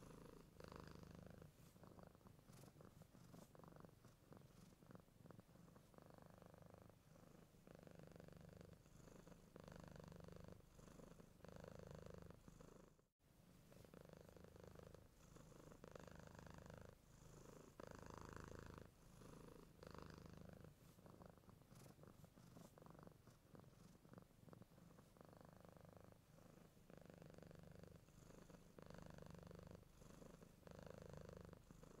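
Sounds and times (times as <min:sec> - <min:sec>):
cat purring: 0:00.0 - 0:32.0.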